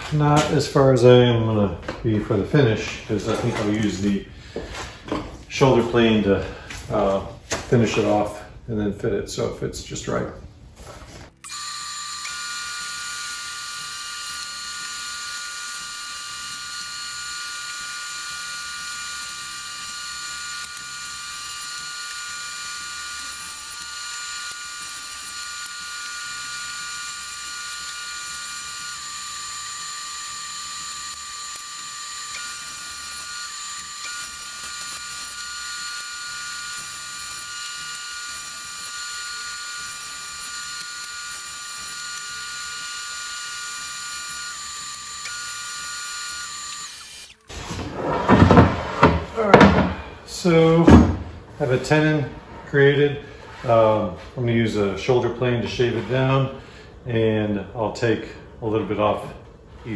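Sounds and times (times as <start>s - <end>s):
table saw whining: 11.3s - 52.2s.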